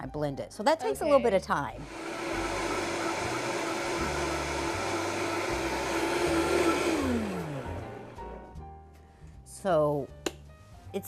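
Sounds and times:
blender whirring: 0:01.6 - 0:08.5.

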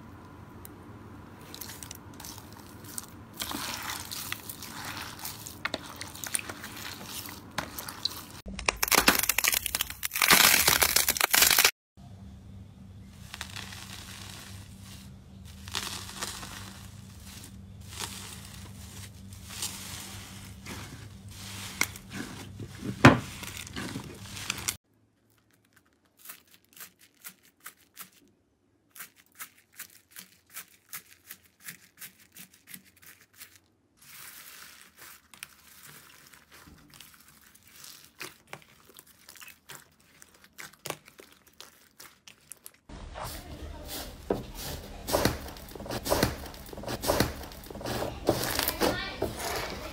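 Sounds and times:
slime squishing: 0:01.4 - 0:11.7, 0:13.2 - 0:28.2, 0:28.9 - 0:49.9
slime with foam beads crackling: 0:01.4 - 0:11.7, 0:13.1 - 0:28.3, 0:28.9 - 0:49.9
metallic foil crinkling: 0:01.5 - 0:11.7, 0:13.2 - 0:28.3, 0:28.9 - 0:49.9
sharp loud foil crackle: 0:08.4 - 0:11.7, 0:13.2 - 0:20.1.

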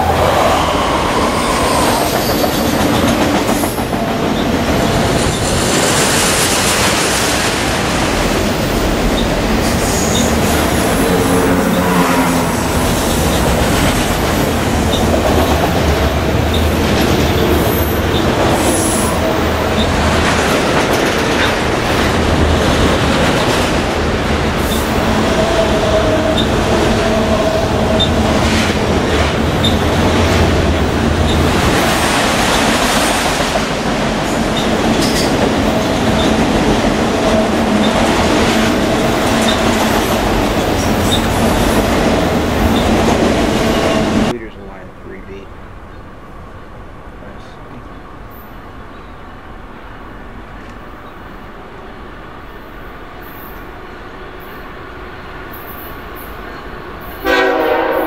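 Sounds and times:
train wheels rumbling on rails: 0:00.0 - 0:45.4.

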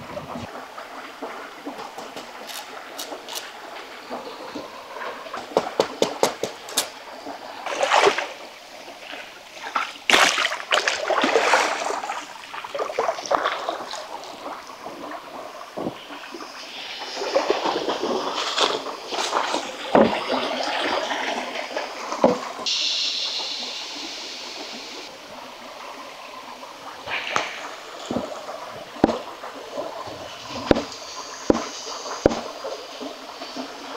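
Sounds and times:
water pouring off log: 0:00.5 - 0:22.8
feet splashing through water: 0:01.8 - 0:16.2.

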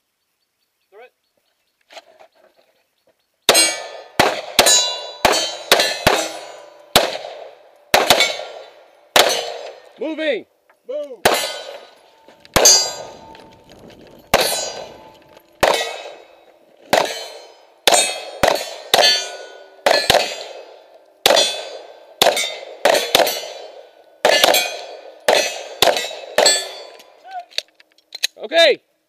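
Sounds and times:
metallic ringing of steel targets: 0:03.5 - 0:07.1, 0:08.0 - 0:09.8, 0:11.2 - 0:13.4, 0:14.3 - 0:16.4, 0:17.0 - 0:27.2
pistol shots: 0:03.5 - 0:09.9, 0:11.2 - 0:13.5, 0:14.3 - 0:27.0.

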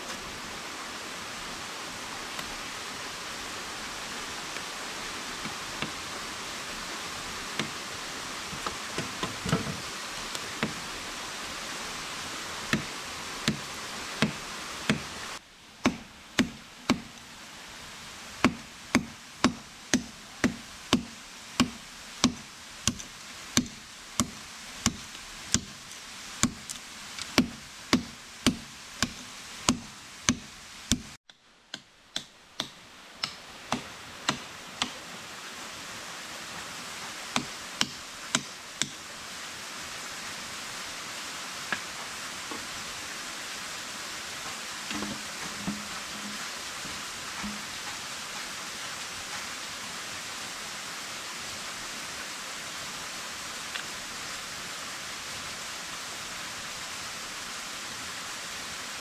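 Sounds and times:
machete chopping wood: 0:12.7 - 0:15.1, 0:15.8 - 0:17.2, 0:18.4 - 0:25.8, 0:26.4 - 0:35.0, 0:37.4 - 0:39.0.

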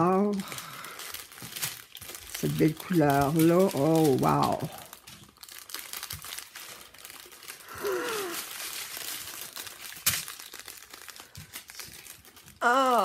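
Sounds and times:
plastic bags crinkling: 0:00.0 - 0:13.0
person humming: 0:07.7 - 0:08.4, 0:12.6 - 0:13.0.

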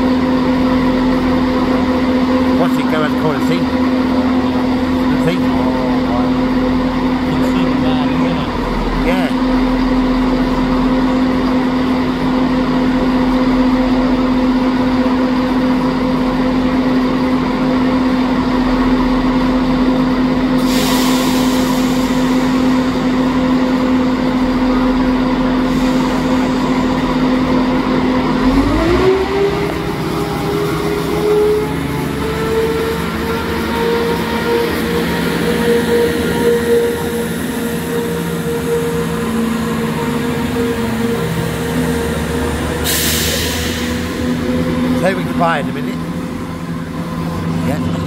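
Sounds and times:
train diesel engine running: 0:00.0 - 0:48.0
hiss: 0:20.6 - 0:22.7, 0:42.8 - 0:44.2.

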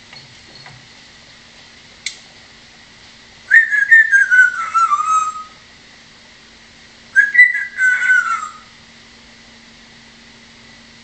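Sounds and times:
parrot whistling: 0:03.5 - 0:05.6, 0:07.2 - 0:08.7.

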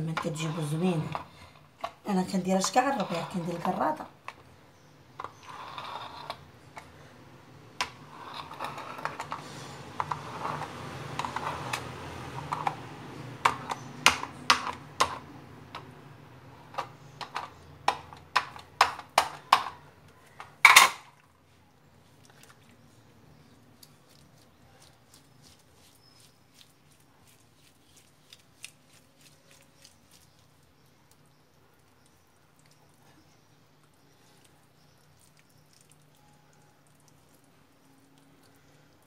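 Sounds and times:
sticky dough clicks and taps: 0:13.4 - 0:15.2
dough rustling: 0:21.6 - 0:38.9.

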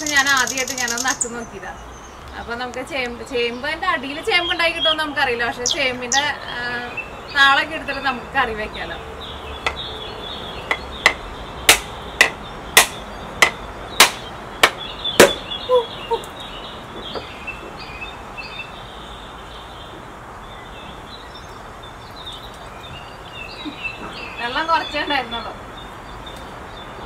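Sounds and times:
birds chirping: 0:00.0 - 0:27.0
coconut being struck: 0:09.6 - 0:09.8, 0:10.7 - 0:15.5.

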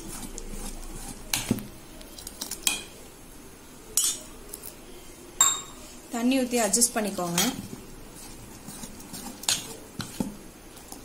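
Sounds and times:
metal spoon scraping steel vessel: 0:08.2 - 0:10.2.

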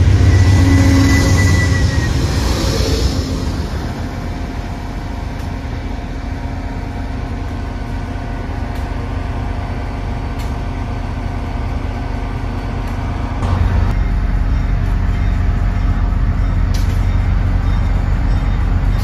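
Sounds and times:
steady whine: 0:00.0 - 0:10.0
train engine rumble: 0:00.0 - 0:19.0.

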